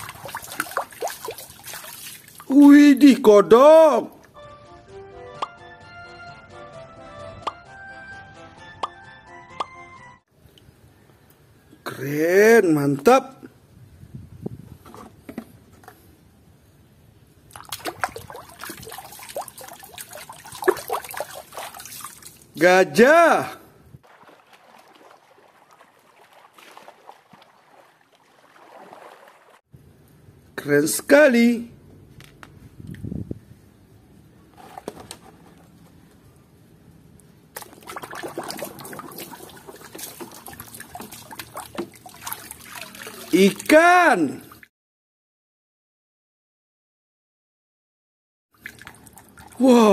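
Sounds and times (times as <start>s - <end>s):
toys splashing in water: 0.0s - 2.6s, 17.5s - 22.6s, 24.0s - 29.6s, 37.6s - 43.8s.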